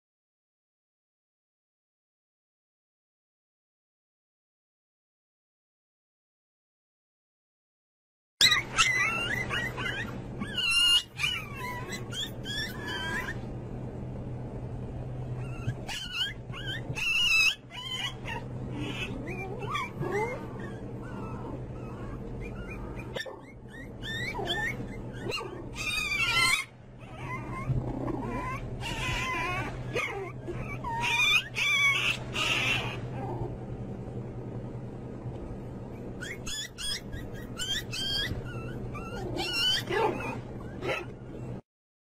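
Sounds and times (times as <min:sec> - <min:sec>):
puppies whining and yipping: 0:08.4 - 0:13.5, 0:15.3 - 0:33.4, 0:35.9 - 0:41.6.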